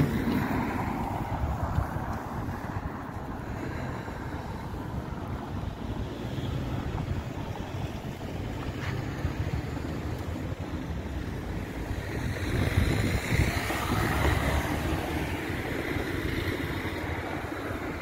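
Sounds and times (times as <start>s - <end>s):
street traffic: 0.0s - 18.0s
wind buffeting microphone: 0.0s - 18.0s
car passing close by: 12.1s - 18.0s.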